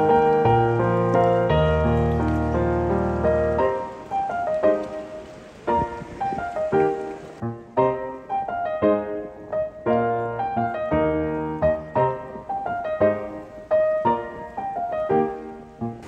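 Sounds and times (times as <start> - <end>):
slow piano melody: 0.0 - 16.0.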